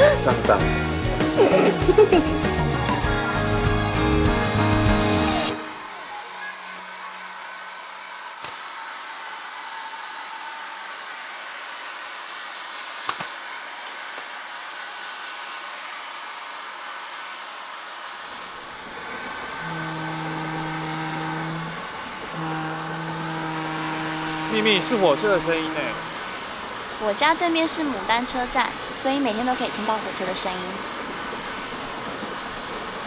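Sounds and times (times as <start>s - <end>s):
hair dryer blowing: 0.0s - 33.0s
train horn: 5.5s - 8.2s, 19.3s - 26.3s.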